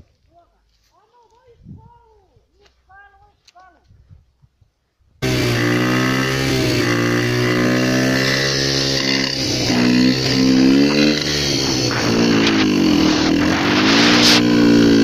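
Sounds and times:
small motorcycle engine revving: 5.2 - 15.0.

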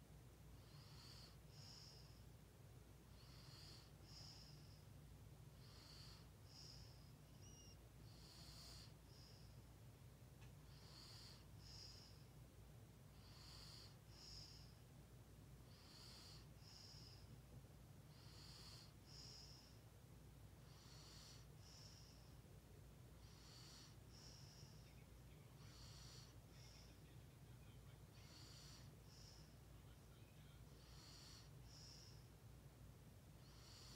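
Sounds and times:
low steady hum: 0.0 - 33.9
slow breathing with whistle: 5.7 - 9.7, 23.3 - 25.0.

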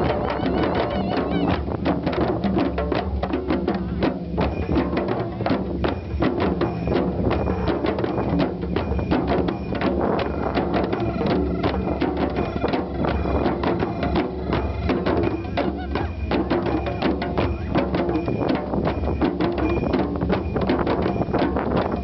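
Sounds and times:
djembe hand drums: 0.0 - 22.0.

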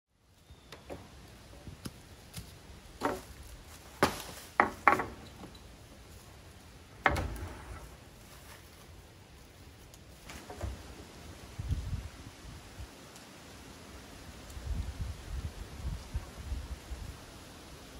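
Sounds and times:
wooden boards knocking on wood: 4.0 - 5.2.

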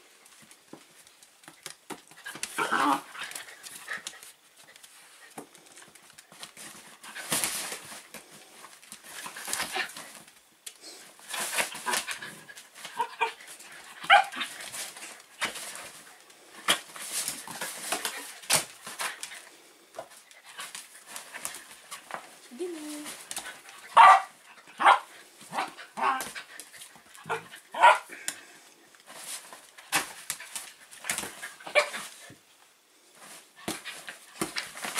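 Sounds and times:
dogs scuffling on the floor: 0.2 - 10.4, 11.0 - 28.4, 29.0 - 32.4, 33.1 - 34.9
dog yipping: 24.0 - 25.0.

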